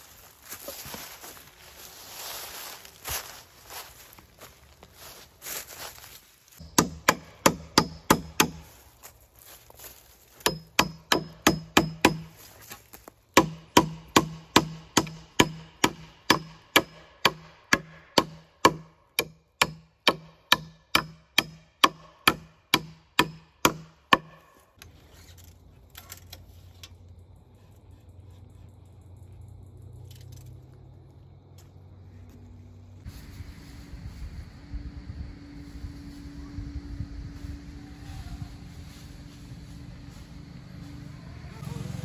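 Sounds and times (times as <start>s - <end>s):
hammer striking wooden boards: 6.6s - 8.7s, 10.4s - 12.4s, 13.4s - 24.5s.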